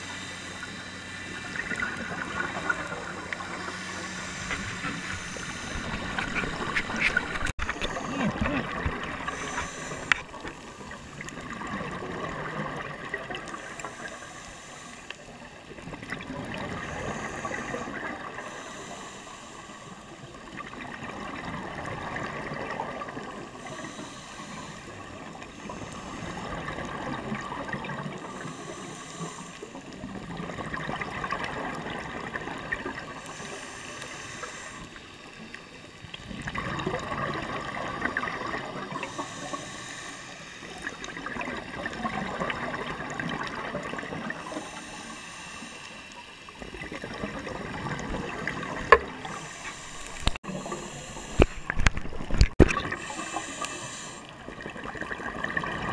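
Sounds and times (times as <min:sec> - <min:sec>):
exhaled air bubbling: 0:01.3 - 0:14.2, 0:19.8 - 0:28.7, 0:29.8 - 0:33.7, 0:36.1 - 0:40.0, 0:40.6 - 0:45.6, 0:46.2 - 0:55.9
regulator hissing inhalations: 0:02.4 - 0:07.1, 0:09.2 - 0:11.0, 0:13.5 - 0:15.4, 0:16.8 - 0:20.2, 0:23.6 - 0:26.5, 0:28.2 - 0:29.9, 0:33.2 - 0:35.0, 0:38.9 - 0:41.0, 0:44.4 - 0:46.4, 0:49.2 - 0:51.8, 0:52.9 - 0:54.4.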